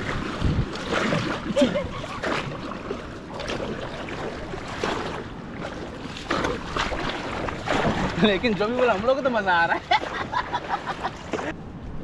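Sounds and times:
wind rumble on microphone: 0.0s - 2.5s, 11.4s - 12.0s
water rushing: 0.0s - 11.6s
water splashes: 0.0s - 11.6s.

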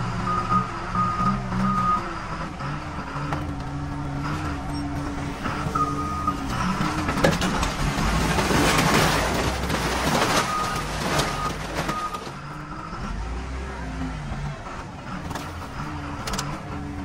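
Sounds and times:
excavator engine under load: 0.0s - 17.0s
warning alarm beeps: 0.2s - 2.1s, 4.7s - 6.8s
clattering crashing noise: 6.3s - 12.6s.

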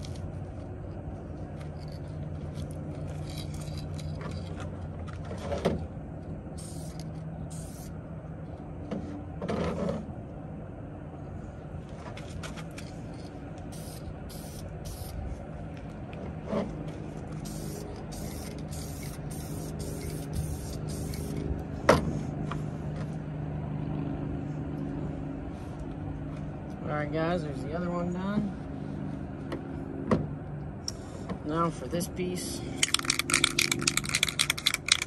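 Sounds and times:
low engine hum: 0.0s - 35.0s
spray can hissing: 6.6s - 7.9s, 13.7s - 15.2s, 17.4s - 21.4s.

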